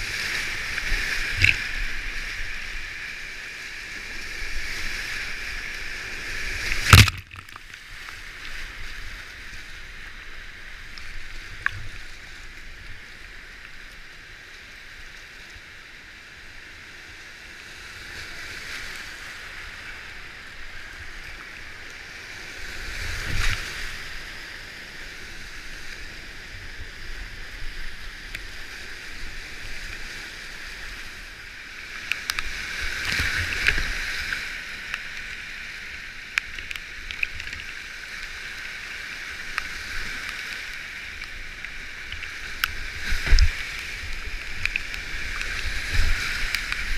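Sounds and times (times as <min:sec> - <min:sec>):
whitewater rushing around kayak: 0:00.0 - 0:46.9
sharp hit on kayak: 0:06.8 - 0:07.4.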